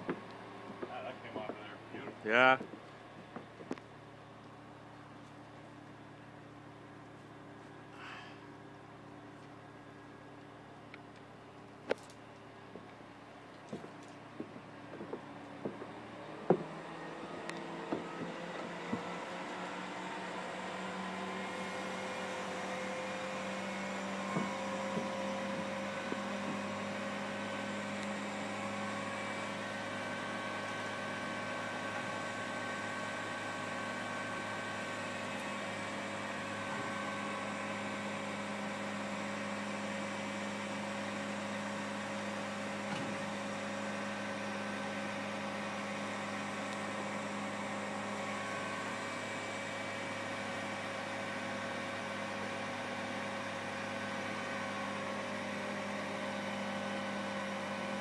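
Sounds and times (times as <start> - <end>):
large engine idling: 0.0 - 58.0
steady whine: 0.0 - 58.0.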